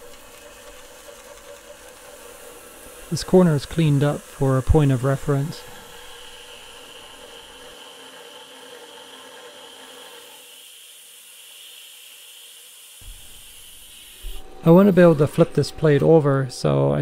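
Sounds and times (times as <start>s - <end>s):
spray nozzle hissing: 0.0s - 7.7s, 13.0s - 15.2s
milling machine cutting metal: 0.0s - 16.9s.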